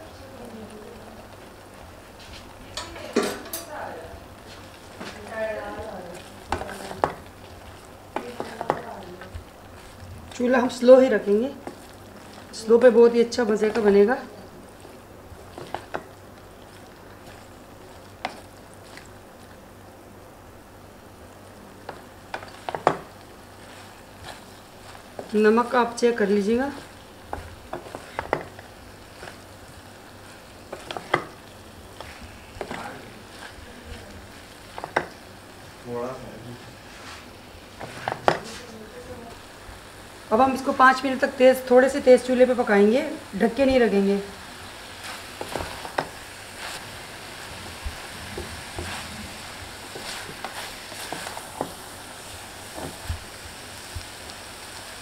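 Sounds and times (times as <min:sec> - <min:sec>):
quiet frying sizzle: 0:00.0 - 0:55.0
wooden spatula scraping pot: 0:04.4 - 0:19.1, 0:21.8 - 0:35.3, 0:36.6 - 0:38.8, 0:43.5 - 0:53.3.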